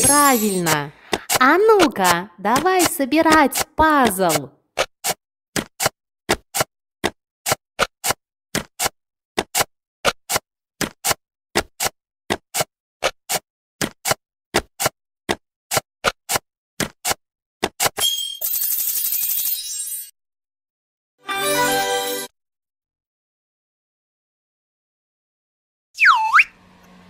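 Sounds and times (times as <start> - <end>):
bright jingle: 0.0 - 0.8, 21.3 - 22.3.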